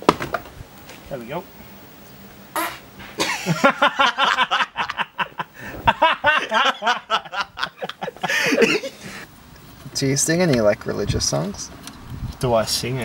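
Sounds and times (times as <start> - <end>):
person laughing: 3.2 - 9.2.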